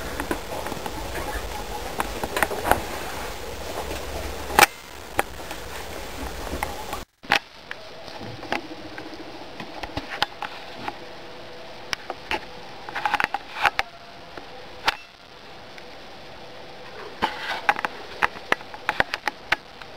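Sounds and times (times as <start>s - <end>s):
small clicks and rustles: 0.0s - 11.0s, 11.9s - 15.9s, 16.8s - 19.9s
marmot nibbling greens: 0.0s - 11.1s.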